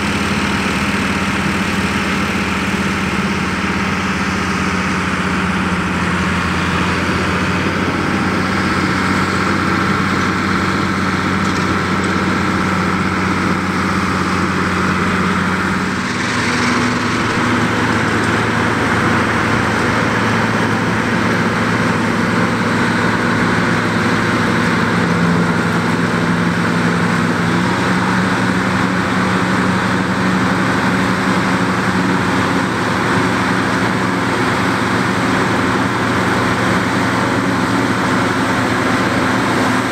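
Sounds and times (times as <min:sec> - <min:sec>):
tractor diesel engine running: 0:00.0 - 0:39.9
forage harvester chopping: 0:15.6 - 0:20.4.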